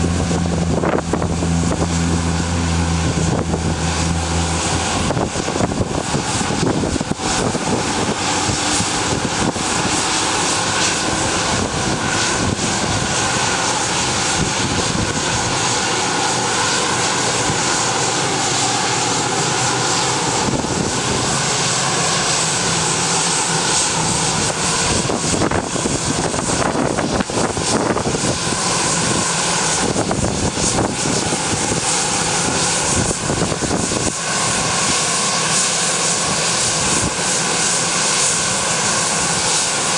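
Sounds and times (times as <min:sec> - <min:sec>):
faint jet whine: 0:00.0 - 0:39.9
jet engines running: 0:00.0 - 0:39.9.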